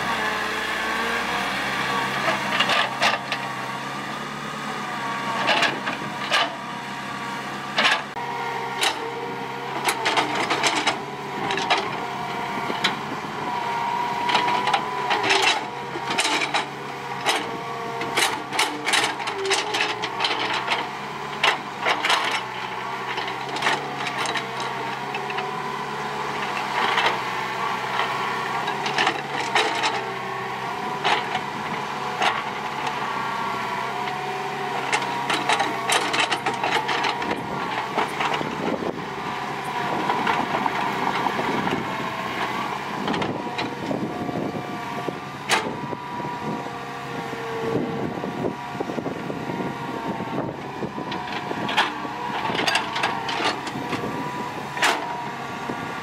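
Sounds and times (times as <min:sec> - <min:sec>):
excavator diesel engine running: 0:00.0 - 0:56.0
hydraulic whine: 0:25.9 - 0:56.0.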